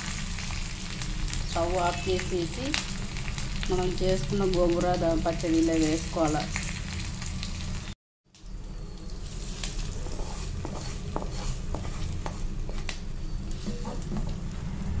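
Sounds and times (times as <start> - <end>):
hot oil sizzling: 0.0 - 15.0
wooden spatula scraping pan: 9.3 - 14.5.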